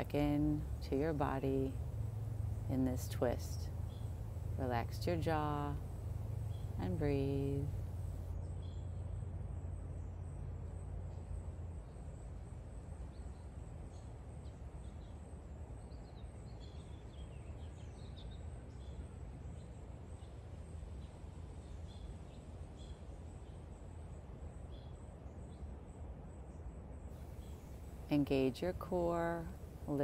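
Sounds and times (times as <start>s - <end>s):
steady low rumble: 0.0s - 8.4s.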